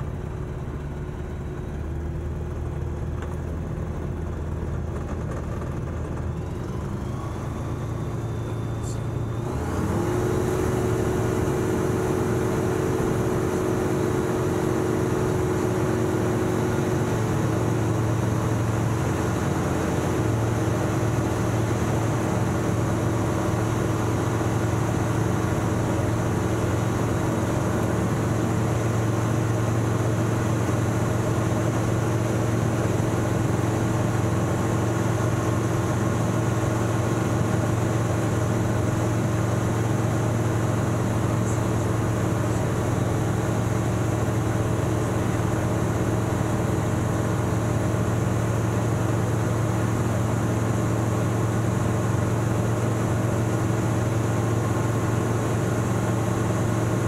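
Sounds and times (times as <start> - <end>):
light aircraft engine drone: 0.0 - 57.0.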